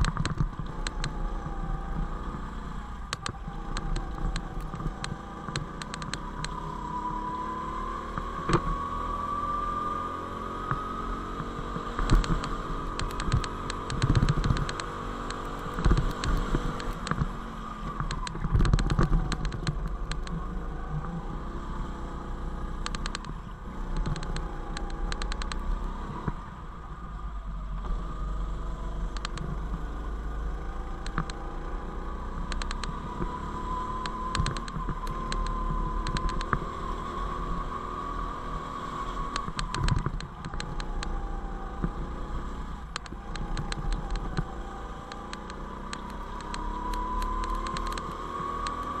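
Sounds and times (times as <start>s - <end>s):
go-kart engine whine: 0.0s - 49.0s
wind rumble on microphone: 10.7s - 21.5s.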